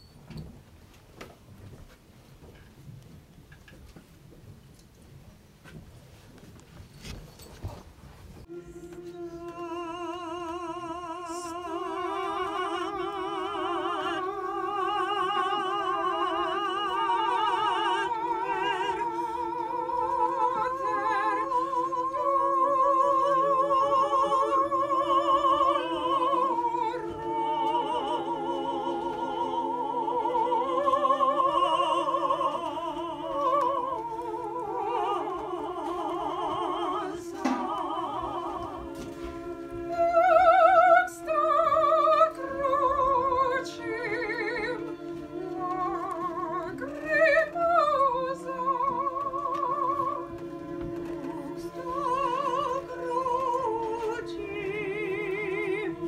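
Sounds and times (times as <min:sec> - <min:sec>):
held low note: 0:08.4 - 0:12.4
women singing operatic duet: 0:08.5 - 0:56.0.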